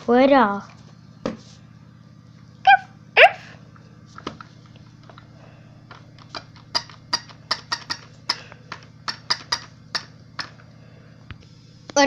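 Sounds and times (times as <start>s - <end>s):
toy puppy clicking taps: 6.6s - 8.4s, 9.1s - 10.5s.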